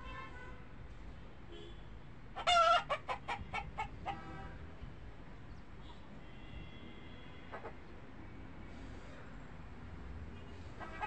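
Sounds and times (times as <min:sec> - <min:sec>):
chicken squawking: 0:02.4 - 0:04.2.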